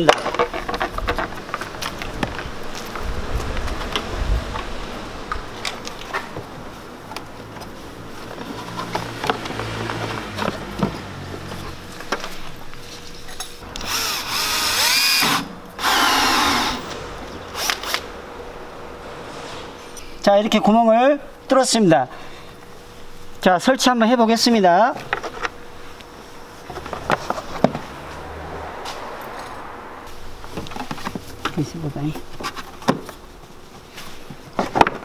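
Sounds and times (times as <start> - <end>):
handling knocks and clicks: 0.0 - 3.0
cordless drill boring: 13.7 - 16.8.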